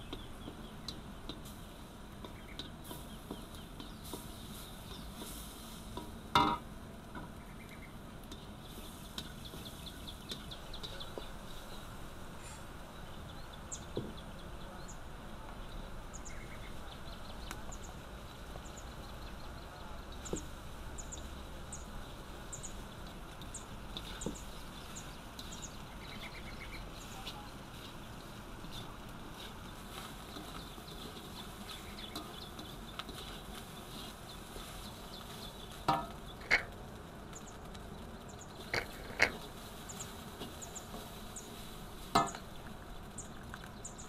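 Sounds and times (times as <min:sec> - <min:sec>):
birds chirping: 0:00.0 - 0:44.0
wooden spatula knocking in wok: 0:02.2 - 0:04.3, 0:06.0 - 0:07.4, 0:35.9 - 0:36.7.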